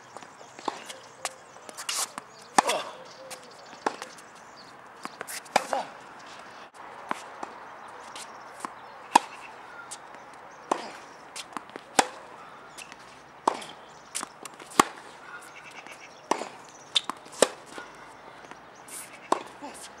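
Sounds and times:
tennis ball pops off rackets: 3.7s - 4.2s, 5.0s - 5.8s, 10.7s - 15.0s, 16.3s - 17.9s, 19.3s - 19.6s.

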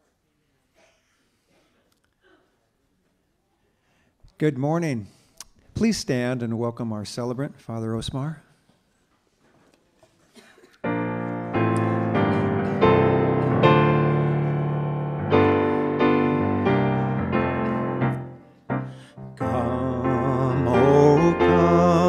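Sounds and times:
piano playing slow chords: 10.8s - 22.0s.

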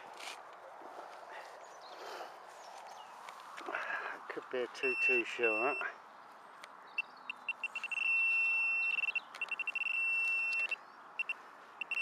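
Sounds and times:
metal detector pinpointer beeping: 4.8s - 5.9s, 7.0s - 12.0s.

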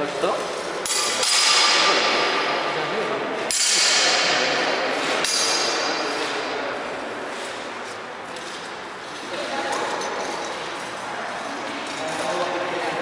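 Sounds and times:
swords clashing: 0.8s - 2.5s, 3.5s - 6.5s.

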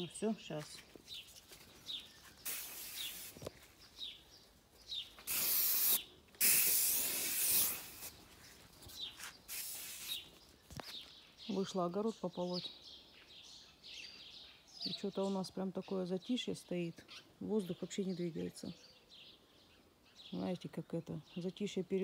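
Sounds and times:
aerosol can spraying: 2.4s - 3.5s, 5.3s - 8.2s, 9.5s - 10.2s.

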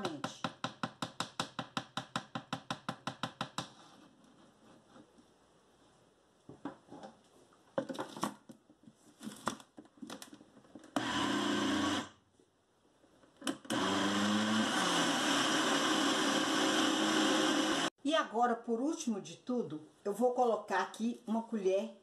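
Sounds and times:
blender motor running: 11.0s - 12.1s, 13.7s - 17.9s.

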